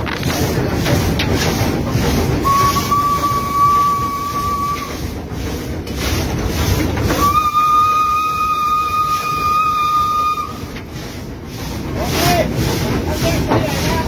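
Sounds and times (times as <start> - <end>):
steam locomotive rumble and clatter: 0.0 - 14.0
train whistle blasts: 2.4 - 5.0, 7.1 - 10.7.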